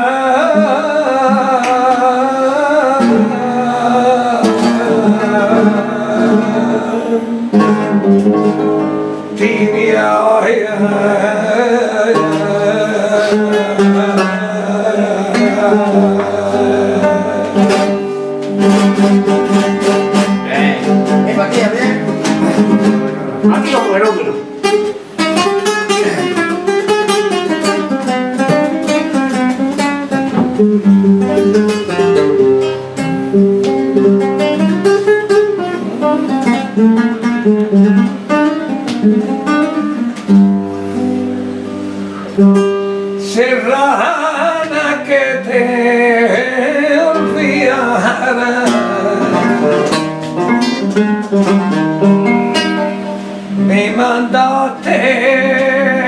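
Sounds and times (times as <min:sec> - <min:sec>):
man singing: 0:00.0 - 0:19.8, 0:20.4 - 0:24.6, 0:25.6 - 0:30.2, 0:43.1 - 0:51.4, 0:53.5 - 0:56.0
flamenco guitar playing: 0:00.0 - 0:56.0.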